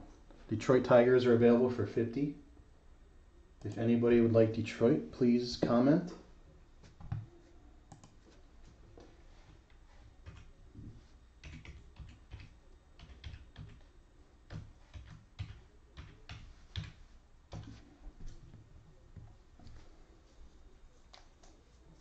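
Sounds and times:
keyboard typing: 7.0 - 7.3, 7.9 - 8.3, 10.2 - 10.6, 11.4 - 13.9, 14.5 - 18.6.

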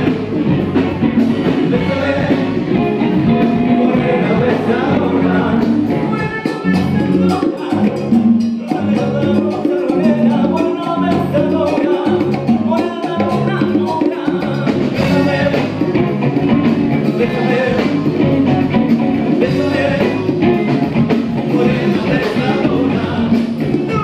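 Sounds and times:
electric guitars: 0.0 - 24.0
live band playing upbeat music: 0.0 - 24.0
man singing: 1.4 - 16.3, 16.9 - 24.0.

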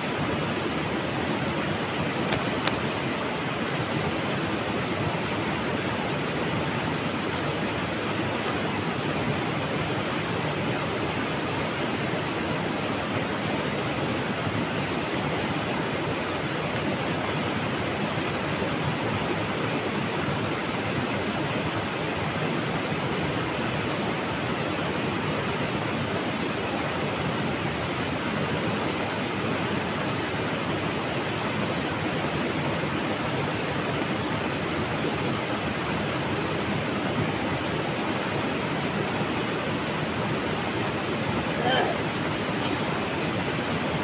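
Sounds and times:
river water over rocks: 0.0 - 44.0.

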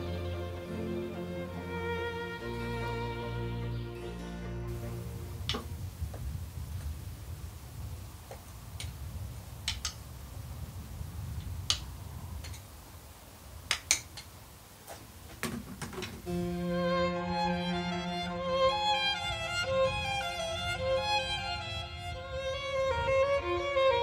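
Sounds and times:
low steady rumble: 0.0 - 12.4, 16.3 - 24.0
sharp clicks and ticks: 9.6 - 10.0.

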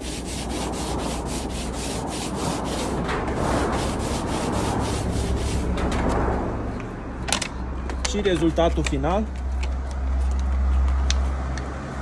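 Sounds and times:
scrubbing a surface: 0.0 - 5.9.

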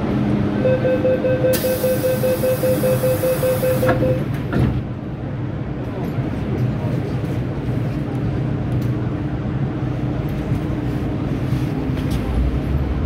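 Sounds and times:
train low rumble: 0.0 - 13.0
door warning beeps: 0.6 - 4.3.

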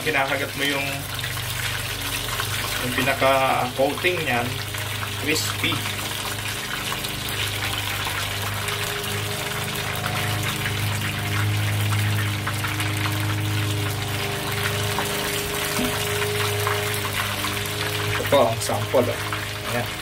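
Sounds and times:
oil sizzling with crackles and pops: 0.0 - 20.0
low hum: 4.5 - 20.0.

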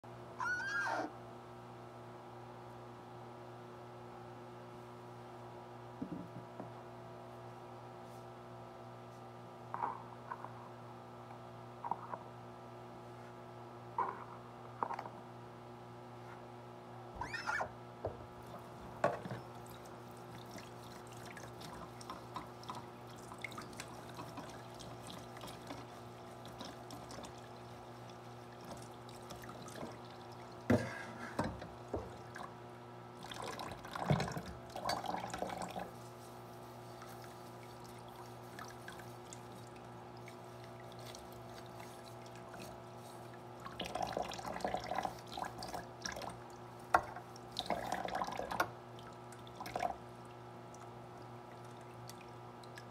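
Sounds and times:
water splashes: 18.4 - 32.6, 33.2 - 52.9.

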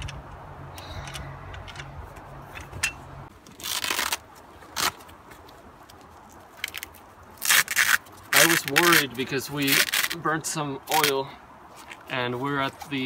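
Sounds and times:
canvas cover rustling and scraping: 3.2 - 5.5.

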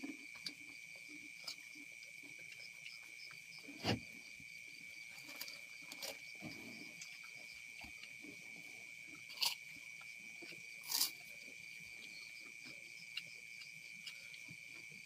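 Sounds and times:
crickets chirring: 0.0 - 15.0.

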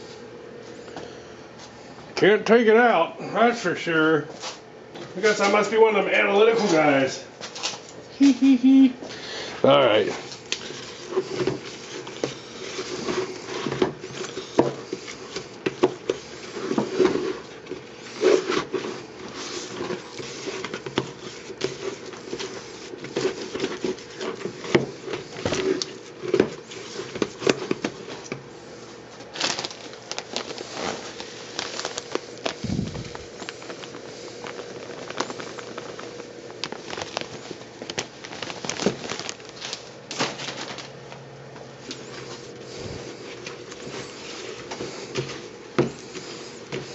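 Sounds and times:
stick stirring wet clay in a tub: 10.0 - 29.3.

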